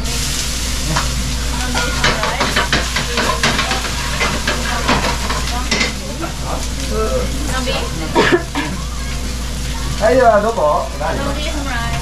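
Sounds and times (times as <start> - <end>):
food sizzling in a frying pan: 0.0 - 12.0
utensil scraping a pan: 0.9 - 6.7.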